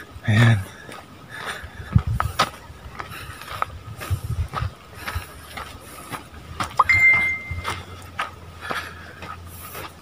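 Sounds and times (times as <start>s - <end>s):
footsteps crunching on leaves: 2.4s - 10.0s.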